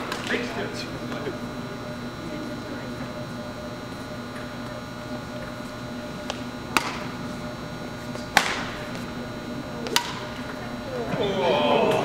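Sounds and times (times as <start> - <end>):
steady background hum: 0.0 - 12.0
racquet striking shuttlecock: 6.2 - 7.2, 8.1 - 9.1, 9.8 - 10.4.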